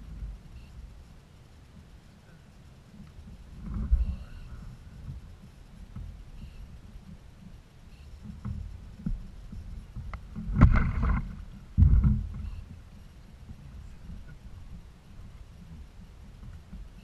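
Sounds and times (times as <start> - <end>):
water knocking against kayak hull: 8.3 - 12.8.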